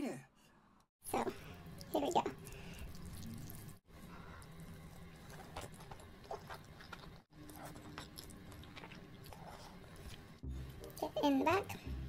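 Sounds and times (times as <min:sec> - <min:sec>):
slurping and chewing: 0:01.8 - 0:10.4.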